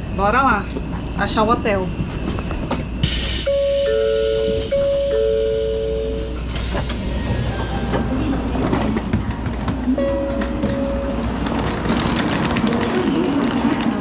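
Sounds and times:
train car hum: 0:00.0 - 0:14.0
hiss: 0:03.0 - 0:03.5
two-tone electronic chime: 0:03.5 - 0:06.4.

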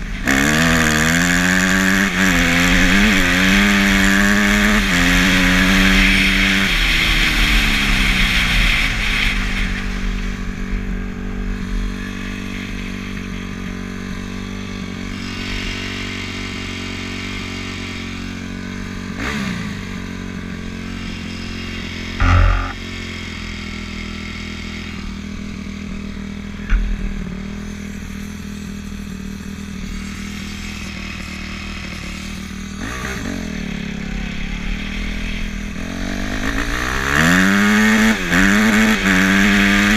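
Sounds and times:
dirt bike engine revving and idling: 0:00.0 - 0:39.9
loud thump: 0:22.2 - 0:22.8.

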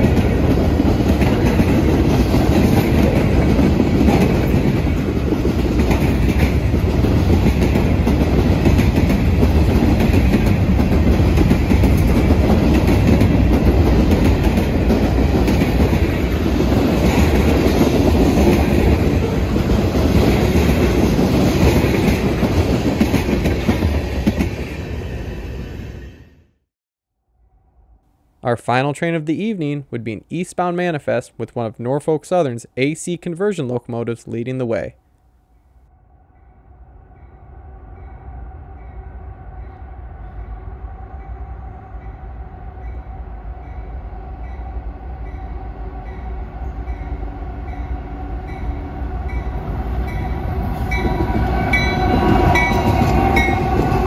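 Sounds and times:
clickety-clack over rail joints: 0:00.0 - 0:24.7
freight train wheels on rail: 0:00.0 - 0:26.4, 0:37.9 - 0:54.0.

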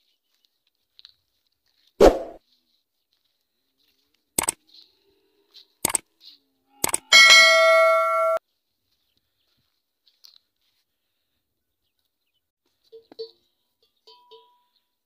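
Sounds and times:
metal neck bell clanking: 0:07.0 - 0:08.4.

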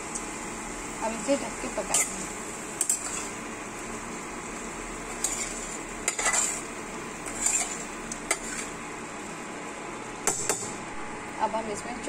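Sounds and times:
metal spatula scraping pot: 0:02.8 - 0:03.4, 0:05.2 - 0:08.7.

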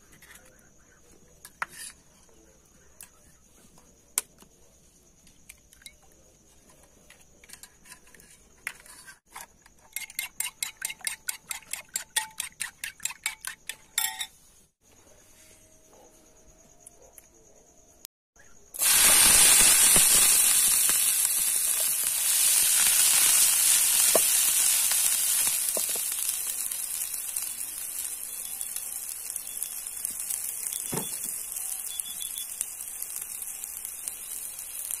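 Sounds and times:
spoon whisking eggs in bowl: 0:09.8 - 0:13.9.

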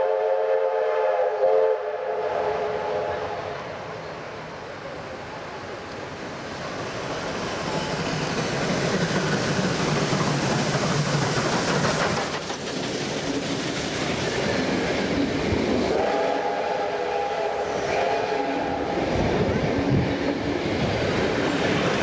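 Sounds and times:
steam whistle: 0:00.0 - 0:03.5, 0:15.9 - 0:19.2
steam locomotive passing: 0:00.0 - 0:22.0
carriages clattering over rails: 0:06.6 - 0:16.0.

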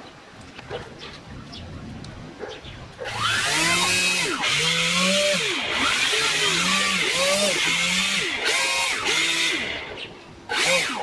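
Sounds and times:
electric motors revving: 0:03.0 - 0:11.0.

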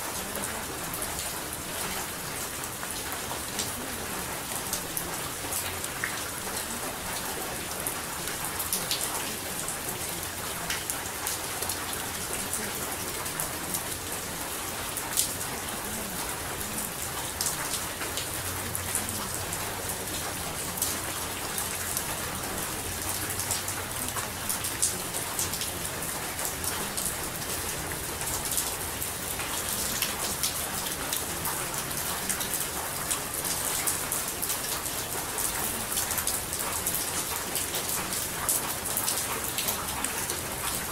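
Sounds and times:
steady rainfall: 0:00.0 - 0:40.9.

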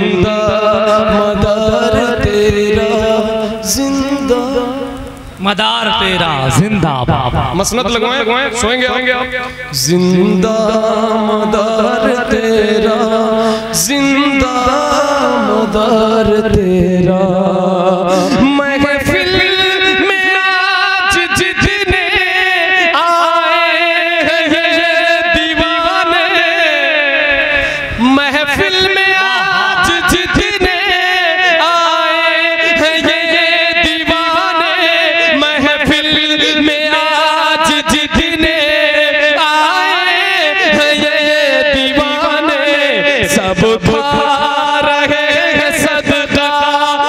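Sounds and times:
man singing into microphone: 0:00.0 - 0:47.0.

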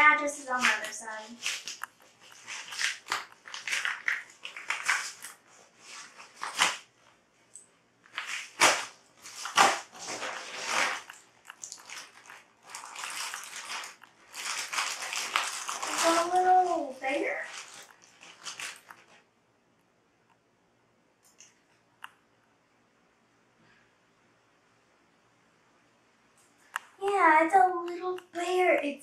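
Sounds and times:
package tearing and crinkling: 0:00.5 - 0:06.8, 0:08.1 - 0:19.2.

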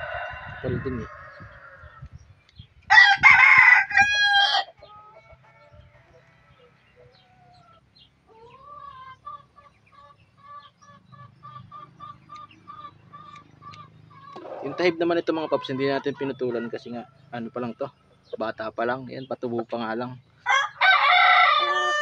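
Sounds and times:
rooster crowing: 0:00.0 - 0:02.0, 0:02.9 - 0:04.7, 0:20.4 - 0:22.0.

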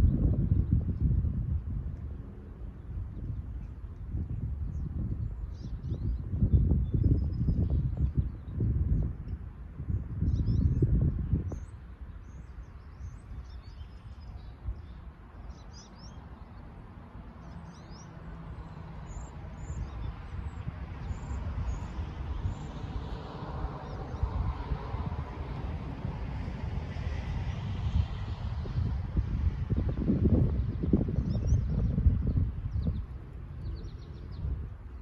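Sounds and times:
wind on microphone: 0:00.0 - 0:35.0
small birds chirping: 0:30.6 - 0:35.0.

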